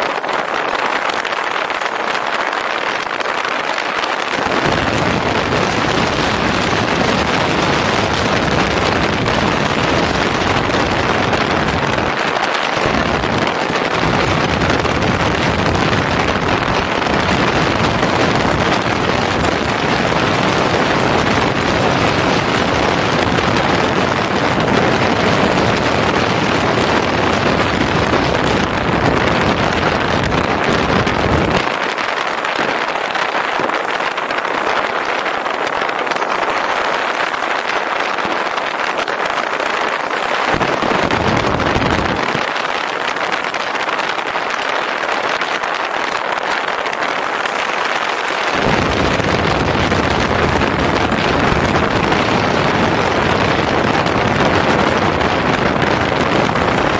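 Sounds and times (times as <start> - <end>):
wind rushing over microphone: 0.0 - 56.9
motorcycle road and engine noise: 4.4 - 31.7, 48.5 - 56.9.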